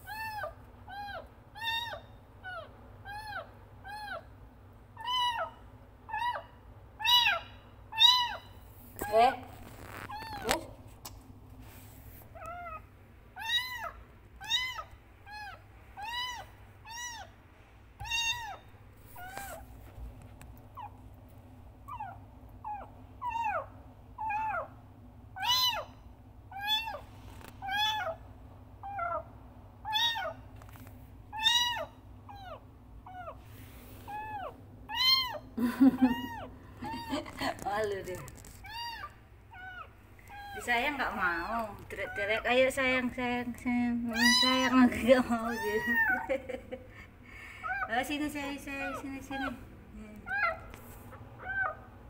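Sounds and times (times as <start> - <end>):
kitten meowing: 0.0 - 4.2, 5.0 - 6.4, 7.0 - 8.5, 13.4 - 17.3, 18.0 - 19.6, 25.4 - 27.0, 27.6 - 28.2, 29.8 - 30.4, 31.3 - 33.4, 34.1 - 37.4, 38.4 - 40.8, 44.1 - 46.4, 51.4 - 51.9.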